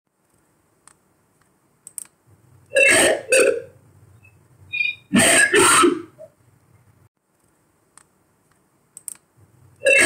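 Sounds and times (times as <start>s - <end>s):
faint clicks: 7.4s - 9.3s.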